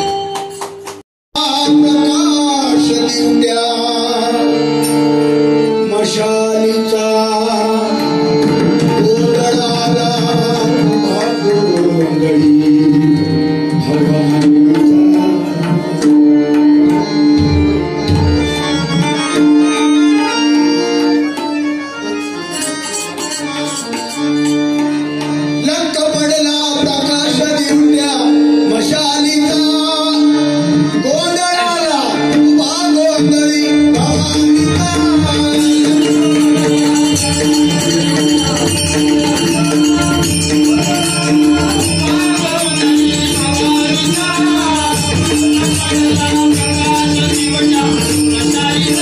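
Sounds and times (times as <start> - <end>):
harmonium drone: 0.0 - 49.0
hand drum playing: 22.2 - 25.4.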